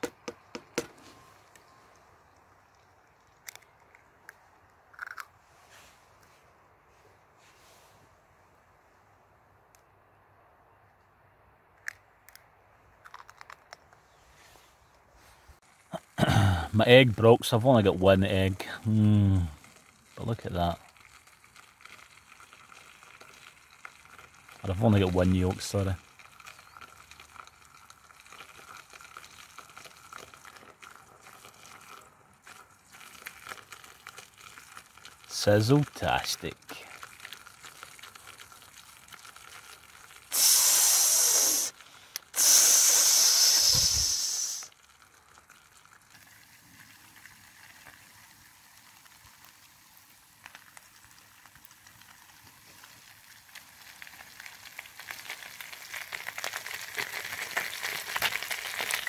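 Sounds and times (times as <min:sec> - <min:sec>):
egg shell cracking: 0:03.0 - 0:05.4, 0:11.7 - 0:14.0, 0:53.6 - 0:59.0
eggs sizzling in frying pan: 0:18.8 - 0:59.0
bacon sizzling in pan: 0:38.9 - 0:45.3, 0:46.2 - 0:59.0.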